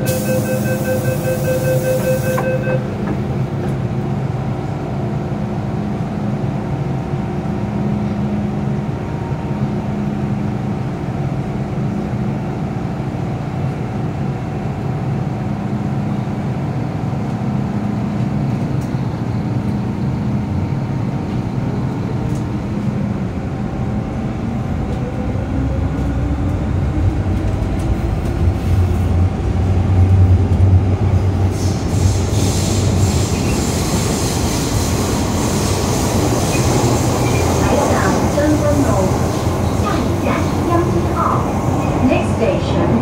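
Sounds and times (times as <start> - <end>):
door-warning beeps: 0.0 - 3.0
train motors and wheels hum: 0.0 - 43.0.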